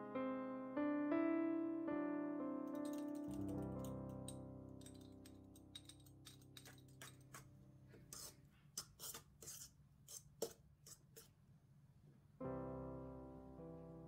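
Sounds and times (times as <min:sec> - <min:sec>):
piano chord: 0:00.0 - 0:05.6, 0:12.4 - 0:14.0
fork scraping metal bowl: 0:02.8 - 0:11.4.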